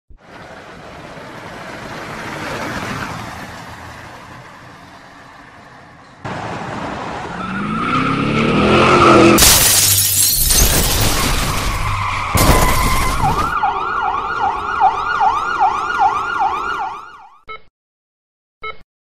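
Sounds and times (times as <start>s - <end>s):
car engine speeding up: 6.3s - 9.4s
loud crash: 9.4s - 13.6s.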